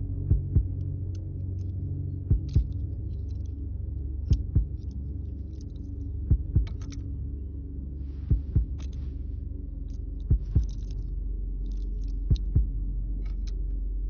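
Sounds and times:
low drone: 0.0s - 14.0s
heartbeat thumps: 0.2s - 0.8s, 2.3s - 2.8s, 4.3s - 4.9s, 6.2s - 6.9s, 8.2s - 9.1s, 10.2s - 11.0s, 12.2s - 12.8s.

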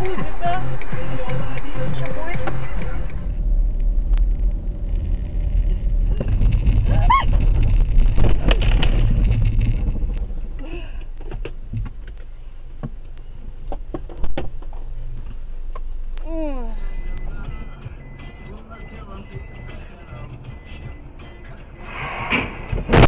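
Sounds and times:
car engine and road rumble: 0.0s - 23.0s
rising squeal: 0.6s - 10.5s.

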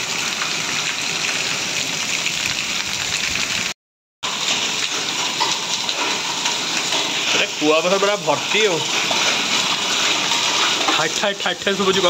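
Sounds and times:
heavy rain and hail: 0.0s - 12.0s
water splashing on concrete: 0.0s - 12.0s.

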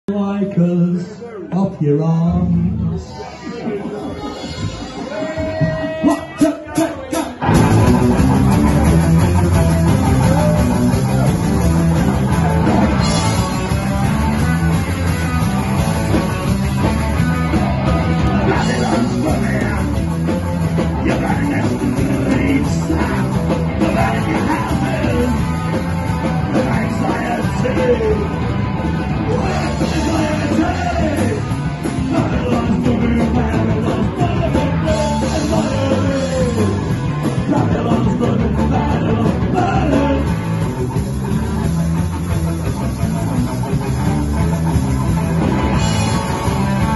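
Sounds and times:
man singing: 0.0s - 3.3s, 17.9s - 20.1s, 20.8s - 40.7s
punk rock band playing: 0.1s - 46.9s.

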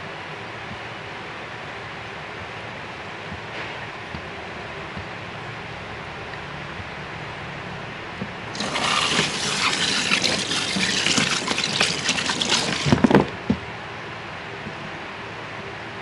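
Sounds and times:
water splashing into basin: 8.5s - 13.3s.

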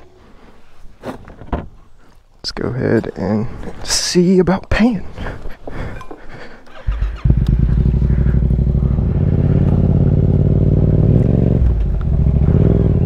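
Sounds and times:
motorcycle engine starting and revving: 6.7s - 13.0s.

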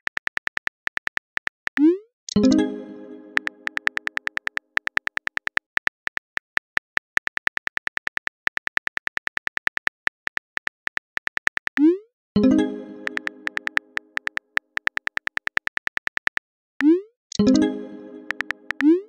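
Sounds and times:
phone keyboard key clicks: 0.0s - 1.8s, 3.4s - 11.8s, 13.0s - 16.5s, 18.3s - 18.9s
message sent chime: 2.3s - 4.0s, 12.4s - 14.0s.

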